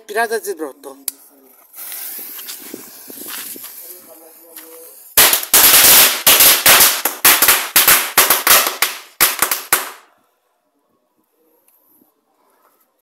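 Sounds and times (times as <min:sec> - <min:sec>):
firecracker bangs: 0:05.2 - 0:10.1.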